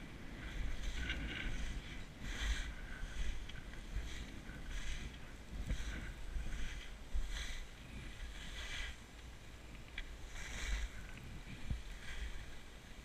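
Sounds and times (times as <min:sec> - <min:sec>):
skis carving on snow: 0:00.0 - 0:13.0
wind rumble on microphone: 0:00.0 - 0:13.0.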